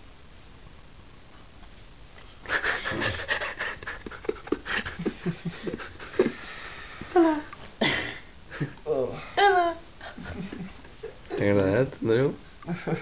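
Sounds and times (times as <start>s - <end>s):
people giggling: 2.5s - 6.5s, 10.0s - 11.4s, 12.6s - 13.0s.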